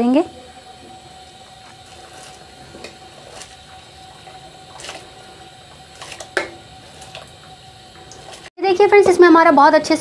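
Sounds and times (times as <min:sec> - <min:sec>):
water boiling hard in a pot: 0:00.0 - 0:10.0
water splashing: 0:00.9 - 0:08.5.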